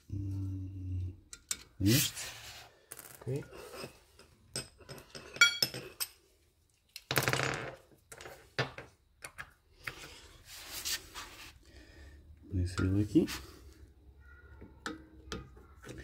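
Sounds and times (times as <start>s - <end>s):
metal tool clinking: 3.3s - 6.2s.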